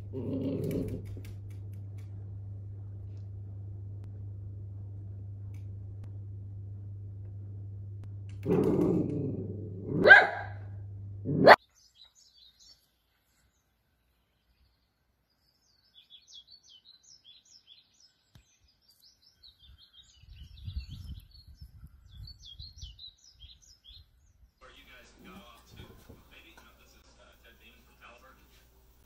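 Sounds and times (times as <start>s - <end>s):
steady low hum: 0.0s - 11.6s
faint birds chirping: 0.0s - 29.0s
dog barking: 9.9s - 10.7s, 11.3s - 11.6s.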